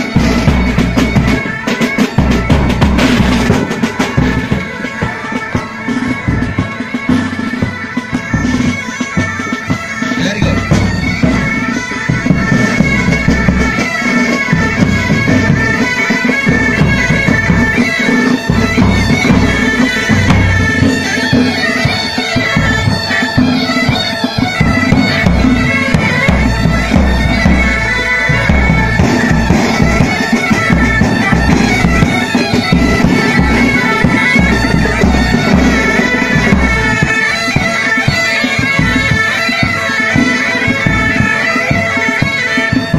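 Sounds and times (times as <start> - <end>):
bagpipes drone and melody: 0.0 - 42.9
marching drums: 0.0 - 42.9.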